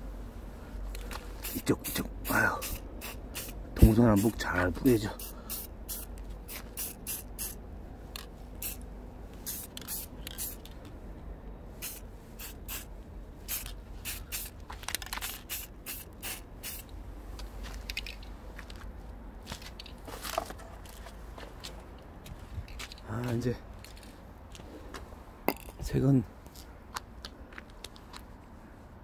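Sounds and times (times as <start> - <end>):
spray paint can hissing: 1.4 - 4.4, 5.2 - 7.6, 8.6 - 8.8, 9.4 - 10.8, 11.8 - 16.9.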